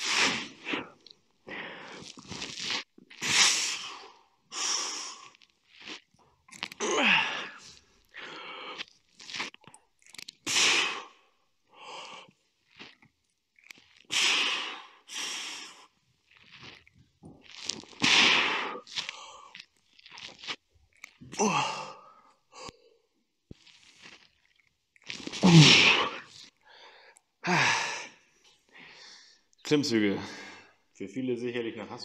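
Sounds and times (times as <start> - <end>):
man groaning: 21.4 - 22.0, 25.4 - 26.2.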